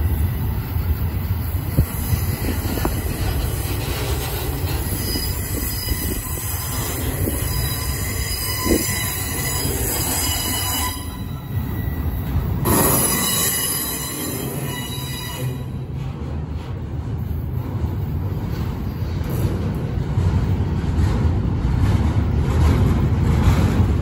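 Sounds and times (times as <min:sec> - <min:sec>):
freight train rumbling past: 0:00.0 - 0:24.0
high-pitched wheel squeal: 0:00.8 - 0:15.8
train clunk: 0:00.8 - 0:24.0.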